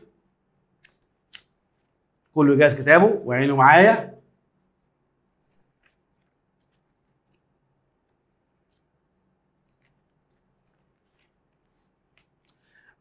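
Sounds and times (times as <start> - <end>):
book pages rustling: 5.4 - 7.5, 8.5 - 12.9.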